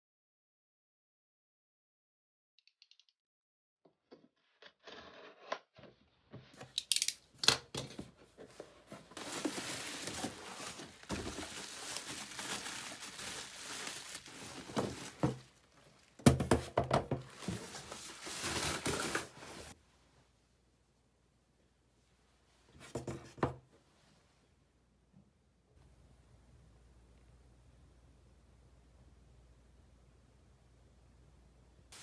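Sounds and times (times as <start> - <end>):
clicks and scrapes: 4.1 - 7.2
plastic wrap crinkling: 9.0 - 16.2, 17.2 - 19.8.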